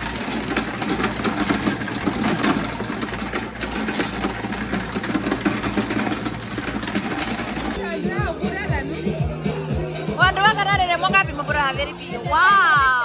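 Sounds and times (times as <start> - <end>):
ice cubes clattering: 0.0 - 7.8
ice dispenser motor whirring: 0.0 - 7.9.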